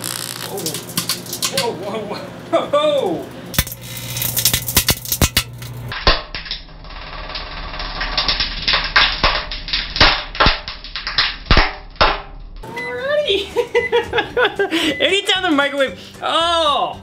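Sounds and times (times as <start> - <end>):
sparks snapping and crackling: 0.0 - 1.9, 3.5 - 12.6.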